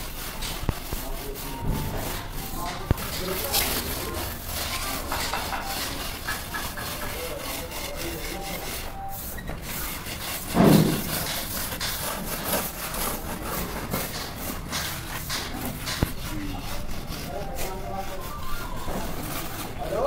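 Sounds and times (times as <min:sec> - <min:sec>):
tool scraping mortar joints: 0:00.0 - 0:20.0
thump: 0:10.5 - 0:11.1.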